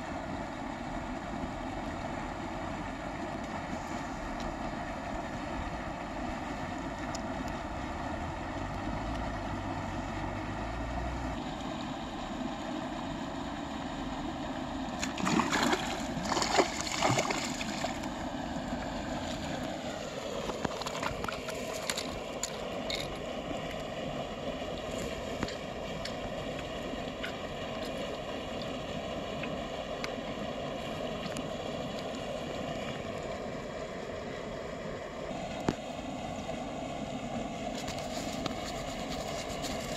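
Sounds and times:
steady background noise with tones: 0.0 - 39.9
water splashing: 14.9 - 23.1.

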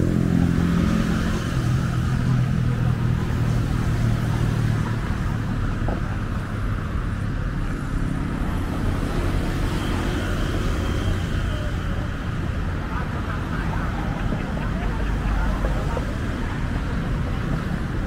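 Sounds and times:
traffic engines rumbling: 0.0 - 18.0.

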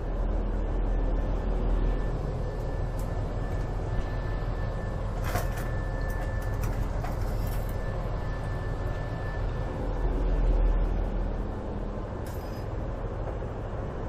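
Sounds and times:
ship engines droning: 0.0 - 14.0
thin steady whine: 0.0 - 14.0.

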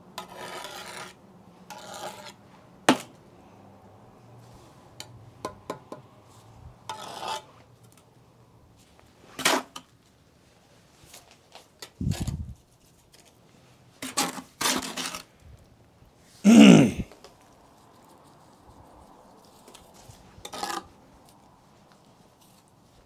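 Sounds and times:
trowel scraping and tapping: 0.2 - 3.1, 6.9 - 8.0, 14.0 - 15.3, 19.7 - 20.9.

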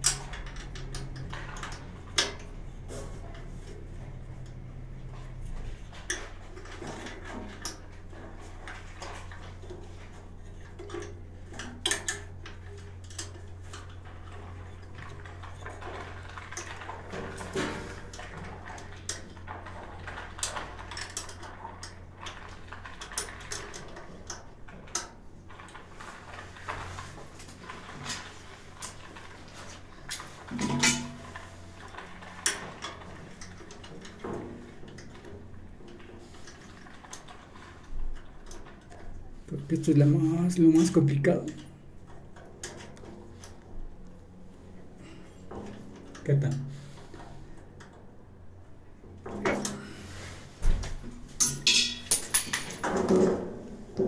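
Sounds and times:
low steady hum: 0.0 - 54.0
metallic clinks and knocks: 30.5 - 31.6, 51.4 - 53.4.

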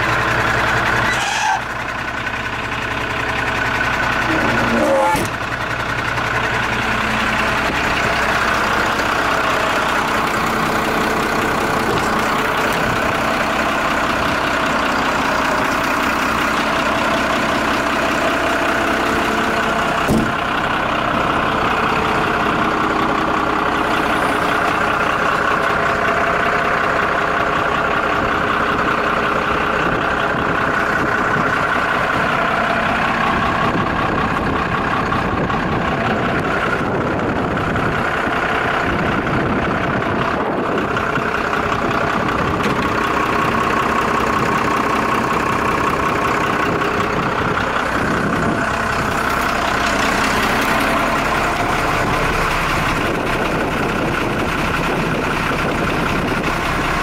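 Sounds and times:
diesel truck engine idling: 0.0 - 57.0
short knock: 20.1 - 20.4.

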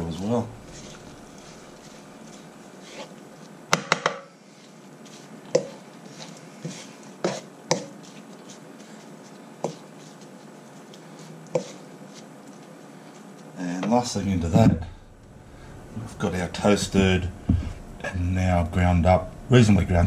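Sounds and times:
food shuffling in wok: 0.0 - 3.6
wooden spatula knocking on wok: 3.7 - 4.2.

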